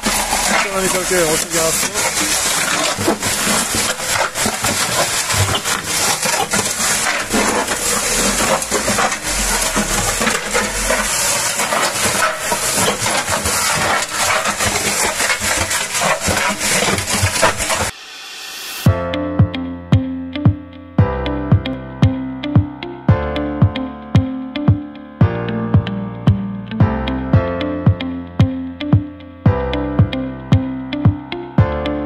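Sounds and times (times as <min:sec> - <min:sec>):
concrete mixer rattling stones: 0:00.0 - 0:18.0.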